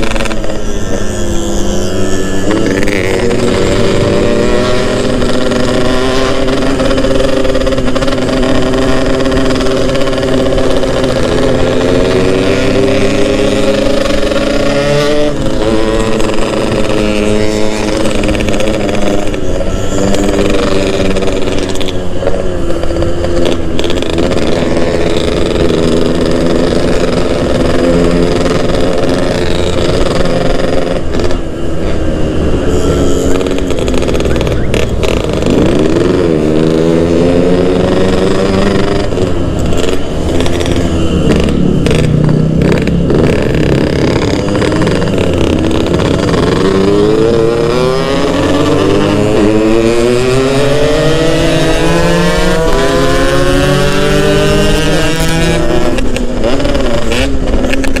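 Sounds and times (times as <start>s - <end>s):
two-stroke motorcycle engine revving: 0.0s - 58.0s.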